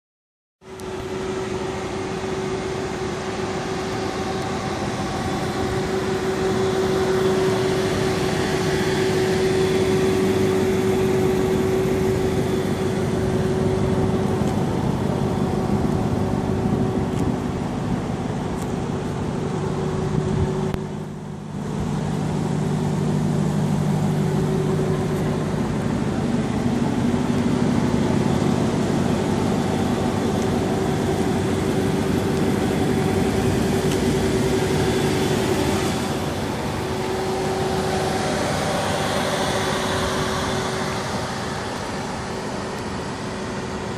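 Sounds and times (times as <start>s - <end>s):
lower hum: 0.6s - 43.9s
machine hum: 0.6s - 43.9s
outdoor noise: 0.6s - 43.9s.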